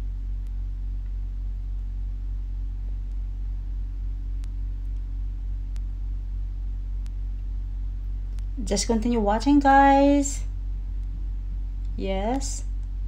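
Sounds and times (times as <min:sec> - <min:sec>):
low hum with faint hiss: 0:00.0 - 0:13.0
faint clicks: 0:04.4 - 0:05.1, 0:08.3 - 0:08.5.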